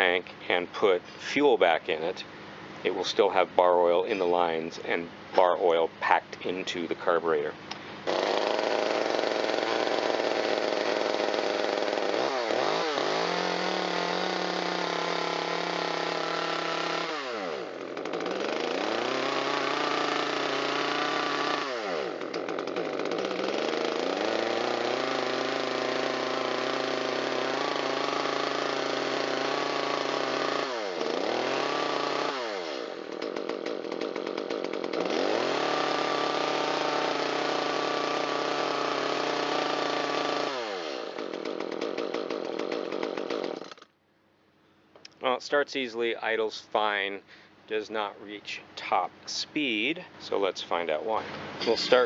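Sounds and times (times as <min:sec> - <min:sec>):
chainsaw engine revving: 0:07.6 - 0:43.9, 0:50.8 - 0:52.0.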